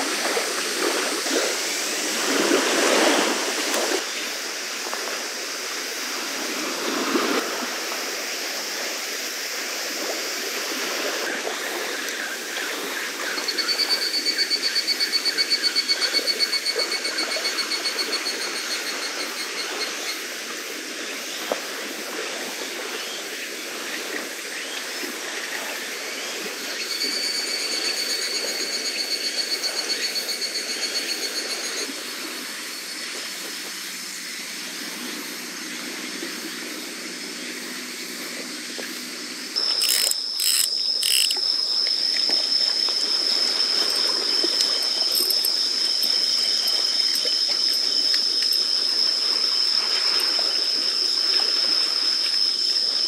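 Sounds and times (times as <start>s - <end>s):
insects pulsing chirring: 0.0s - 53.0s
insect high-pitched trill: 11.7s - 20.6s, 26.1s - 34.7s, 39.5s - 53.0s.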